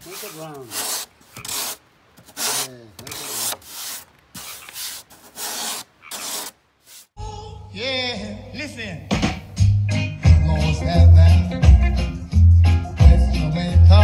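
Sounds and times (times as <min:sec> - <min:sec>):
sanding block rubbing: 0:00.0 - 0:07.1.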